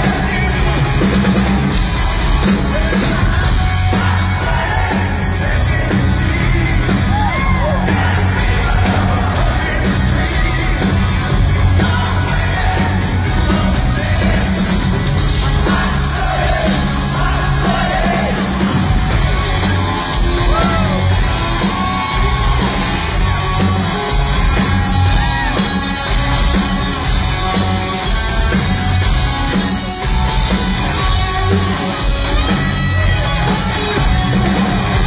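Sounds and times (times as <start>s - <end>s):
rock band playing: 0.0s - 35.0s
singer yelling: 19.3s - 23.0s.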